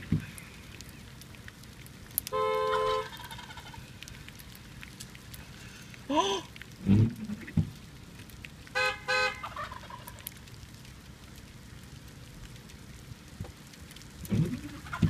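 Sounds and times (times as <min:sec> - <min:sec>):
car horn beeping: 0:02.3 - 0:03.1, 0:08.8 - 0:09.4
wild turkey gobbling: 0:02.9 - 0:03.8, 0:09.4 - 0:10.2, 0:14.4 - 0:15.0.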